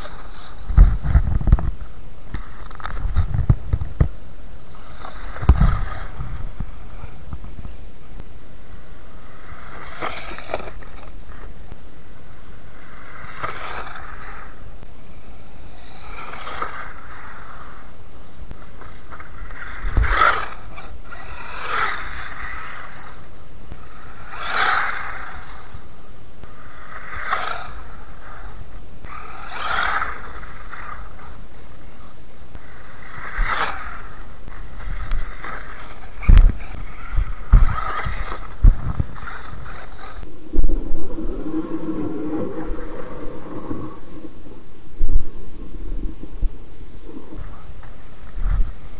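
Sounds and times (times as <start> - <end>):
rc car motor and gear whine: 0.0 - 40.3, 47.4 - 48.9
tyre noise on ice and grit: 4.7 - 7.5, 9.2 - 11.5, 12.7 - 17.9, 18.6 - 25.9, 26.5 - 40.2.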